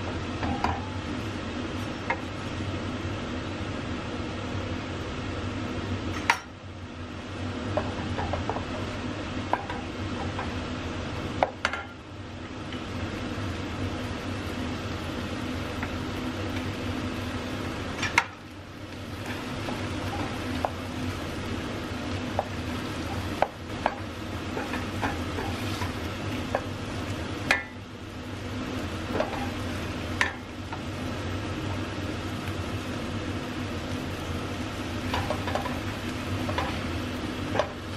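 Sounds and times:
soft sizzle: 0.0 - 37.9
steady hum: 0.0 - 37.9
wooden spoon stirring in a pan: 18.0 - 27.7, 28.6 - 33.0, 33.8 - 37.9.

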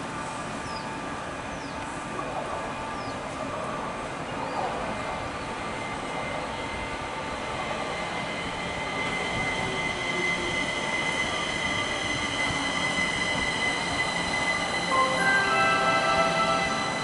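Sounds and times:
rumble of train cars: 0.0 - 17.0
metro train wheels squealing: 4.3 - 17.0
steady tones: 14.8 - 17.0.

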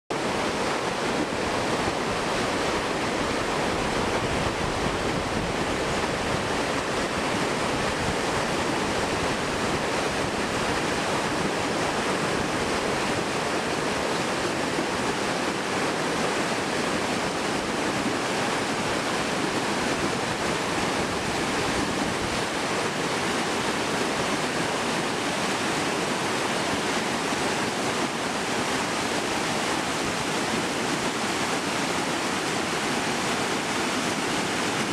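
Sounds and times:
river rapids roaring: 0.1 - 34.9.

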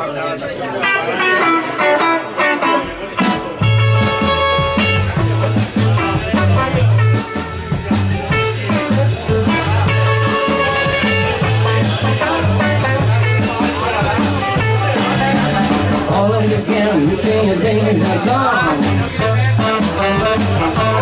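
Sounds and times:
drums: 0.8 - 21.0
electric guitar: 0.8 - 21.0
electric bass: 3.2 - 21.0
tenor saxophone: 3.6 - 8.8, 9.4 - 13.4, 19.2 - 21.0.

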